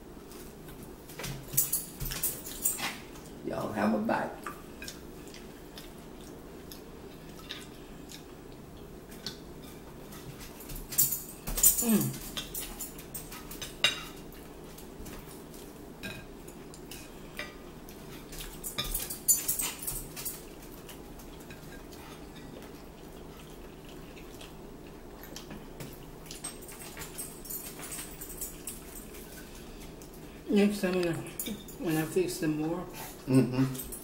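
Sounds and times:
chewing: 0:04.4 - 0:10.9, 0:11.8 - 0:31.8.

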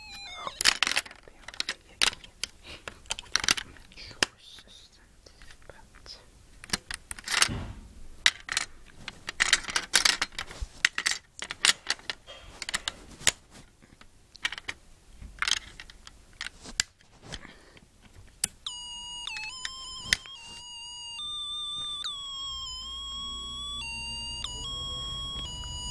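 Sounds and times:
electronic beeping melody: 0:00.0 - 0:00.6, 0:18.7 - 0:25.9
clicks and rustling of handling: 0:00.1 - 0:07.6, 0:08.2 - 0:20.7.

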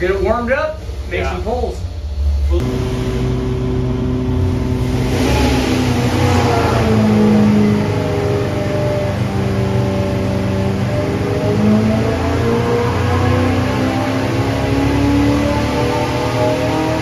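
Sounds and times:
engine running: 0:00.0 - 0:17.0.

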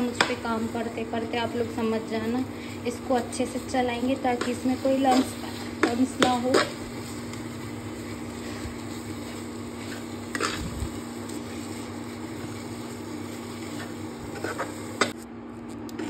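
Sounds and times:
cooktop hum: 0:00.0 - 0:16.0
spatula scraping dough in pan: 0:02.1 - 0:15.2
spatula knocking on pan: 0:05.8 - 0:06.8.

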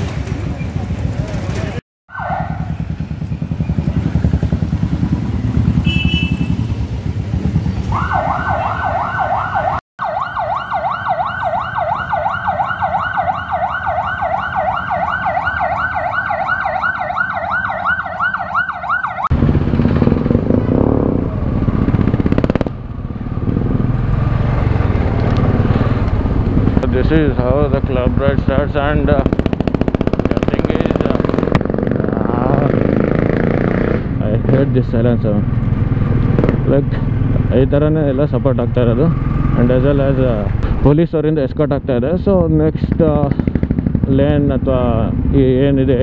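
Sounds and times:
single-cylinder motorcycle engine: 0:00.0 - 0:08.0, 0:19.3 - 0:37.6, 0:38.4 - 0:40.6, 0:42.9 - 0:45.7
motorcycle engines running: 0:00.0 - 0:09.8, 0:13.4 - 0:46.0
police siren yelping: 0:02.1 - 0:02.8, 0:07.9 - 0:19.3.

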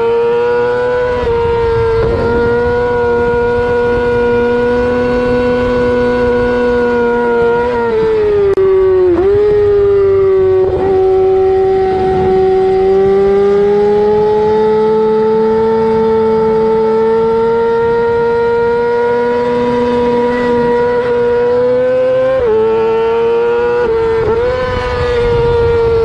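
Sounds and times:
motorcycle engine howling: 0:00.0 - 0:26.0
wind rush: 0:01.0 - 0:14.6, 0:23.7 - 0:26.0.

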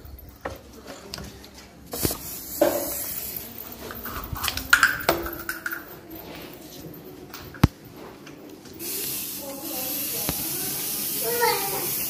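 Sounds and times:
aerosol spray can hissing: 0:01.9 - 0:03.4, 0:08.8 - 0:12.0.

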